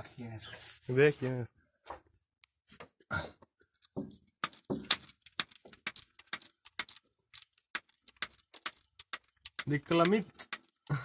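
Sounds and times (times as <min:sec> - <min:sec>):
grease gun clicking: 0:04.4 - 0:10.9.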